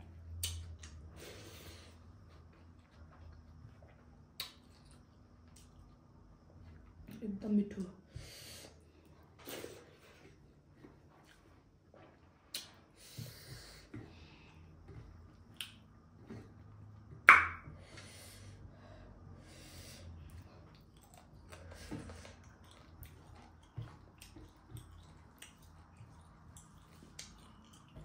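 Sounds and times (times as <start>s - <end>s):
chewing with wet mouth clicks: 4.3s - 6.0s, 20.3s - 28.0s
breaths: 8.1s - 10.3s, 12.9s - 14.8s, 17.8s - 20.7s.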